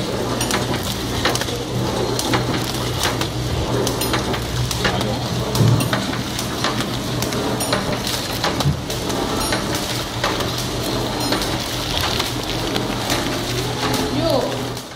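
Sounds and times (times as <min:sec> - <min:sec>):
low motor hum: 0:00.0 - 0:09.8
machine clicks and clatter: 0:00.0 - 0:14.9.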